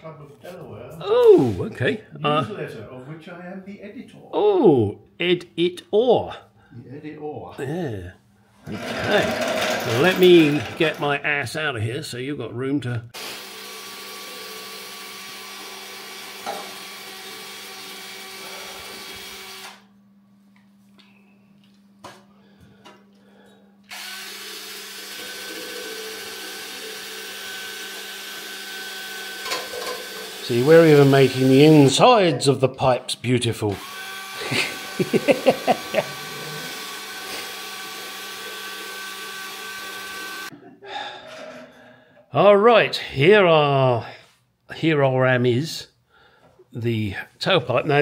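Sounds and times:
electric tool motor whining: 8.6s - 11.1s, 13.2s - 19.9s, 23.9s - 31.9s, 33.7s - 40.5s
short loud rattling sounds: 8.7s - 11.0s
cordless drill running: 8.7s - 11.1s, 13.2s - 19.9s, 23.9s - 31.9s, 33.7s - 40.5s.

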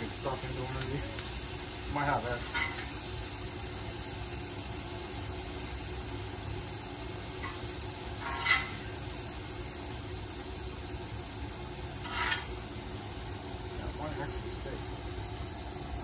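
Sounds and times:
meat and vegetables sizzling: 0.0s - 16.0s
metal spatula scraping griddle: 2.4s - 2.9s, 7.4s - 9.0s, 11.9s - 12.6s.

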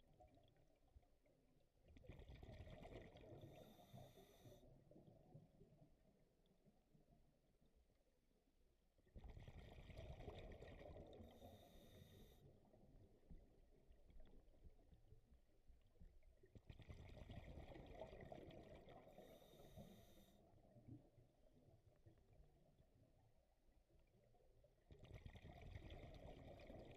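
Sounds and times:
underwater diver breathing bubbles: 2.2s - 4.7s, 9.4s - 12.6s, 16.8s - 20.5s.

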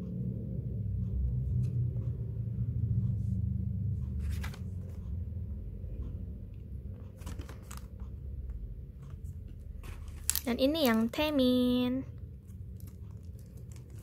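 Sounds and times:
steady low hum: 0.0s - 14.0s
cards rustling and clicking: 4.2s - 5.0s, 7.1s - 8.1s, 9.1s - 11.2s, 12.4s - 14.0s.

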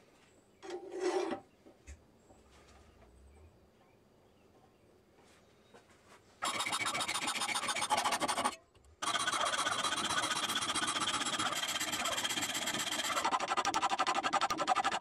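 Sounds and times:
hacksaw cutting steel: 6.4s - 15.0s.

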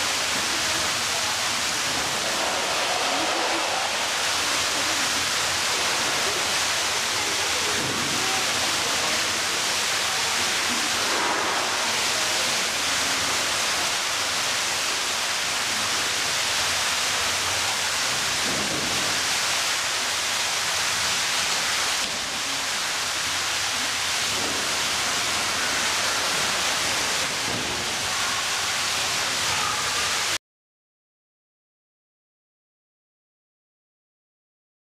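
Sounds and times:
faint voices: 0.0s - 15.2s, 22.2s - 30.4s
loud steady rushing noise: 0.0s - 30.3s.

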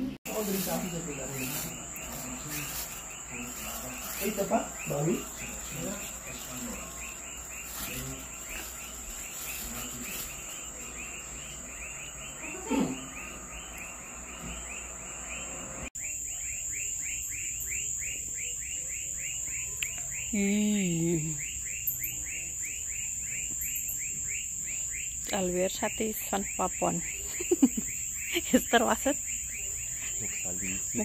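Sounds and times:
high-pitched whine: 0.0s - 18.2s
insects chirping: 0.0s - 31.0s.

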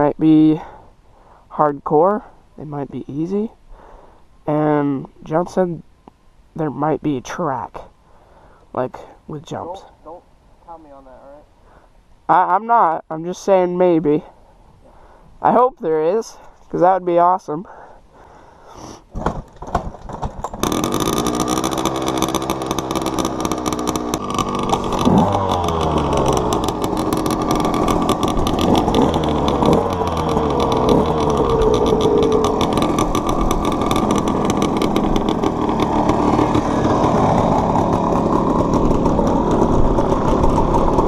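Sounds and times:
dirt bike kick-start: 19.1s - 41.0s
dirt bike engine revving: 20.5s - 41.0s.

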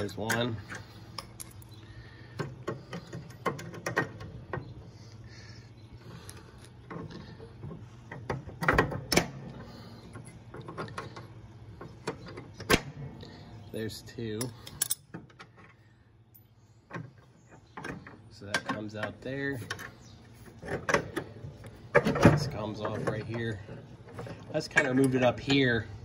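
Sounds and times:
pliers clicking and scraping metal: 14.4s - 15.2s.

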